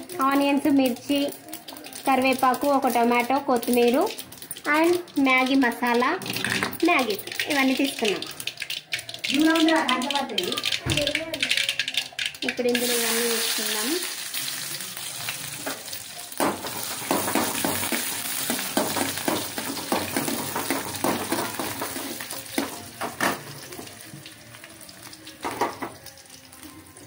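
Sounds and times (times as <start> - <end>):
vegetables sizzling in oil: 0.0 - 27.0
ladle scraping a pan: 6.2 - 6.8.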